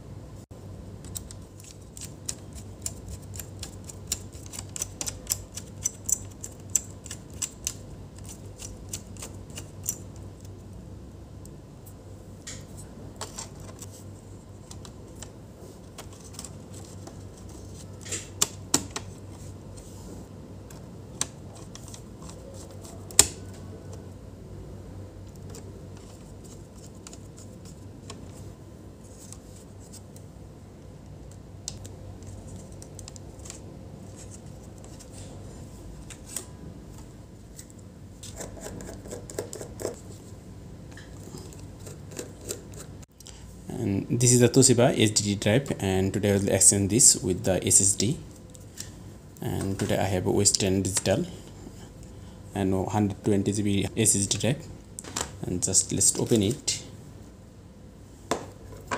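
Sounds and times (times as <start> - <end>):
steady low hum: 0.0 - 58.9
laptop parts rustling and scraping: 12.7 - 24.0, 25.2 - 30.2, 32.1 - 40.4.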